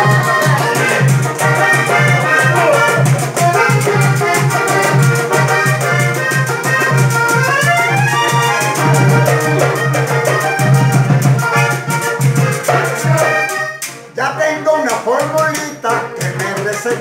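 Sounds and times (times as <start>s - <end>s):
fast percussion beat: 0.0s - 13.4s
button accordion melody: 0.0s - 14.1s, 15.9s - 17.0s
acoustic guitar: 0.0s - 17.0s
pulsing bass line: 7.6s - 11.5s.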